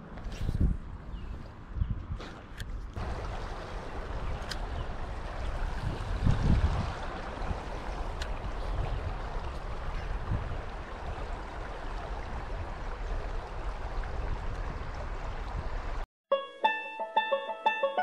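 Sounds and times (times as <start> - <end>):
creek water running over stones: 3.0 - 16.0.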